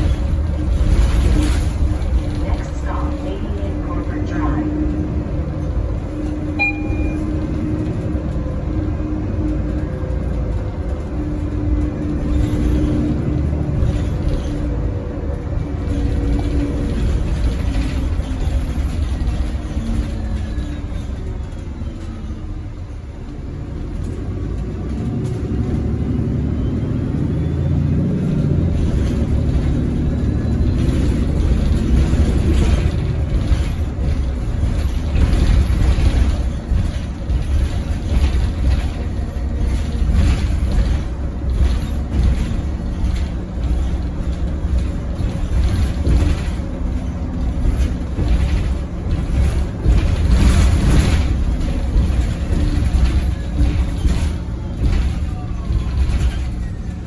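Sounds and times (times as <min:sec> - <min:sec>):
bus engine and road rumble: 0:00.0 - 0:57.0
interior fittings rattling: 0:28.7 - 0:56.9.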